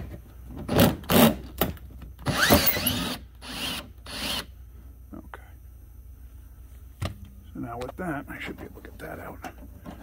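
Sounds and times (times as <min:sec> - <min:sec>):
cordless drill bursts: 0:02.2 - 0:04.5.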